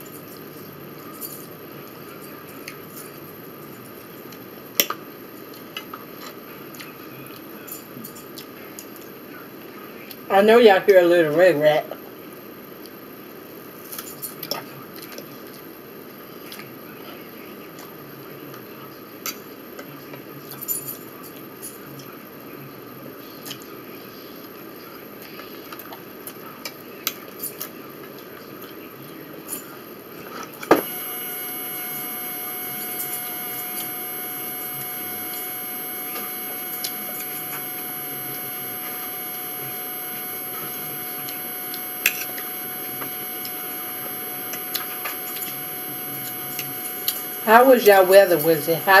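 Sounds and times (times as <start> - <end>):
appliance hum with whining tones: 30.7 - 49.0.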